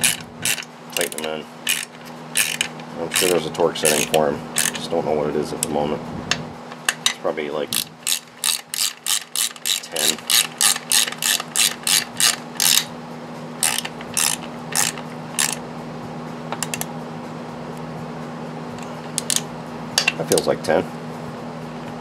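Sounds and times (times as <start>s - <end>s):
ratchet wrench clicking: 0.0s - 4.8s, 7.7s - 12.9s, 13.6s - 15.6s, 18.8s - 19.4s.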